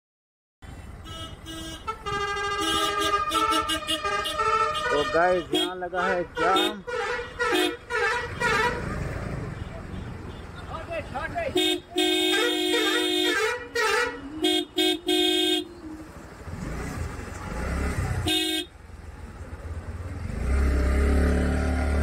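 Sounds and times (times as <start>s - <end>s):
low rumble of traffic: 0.6s - 22.0s
vehicle horns honking: 0.7s - 16.1s, 18.2s - 18.8s.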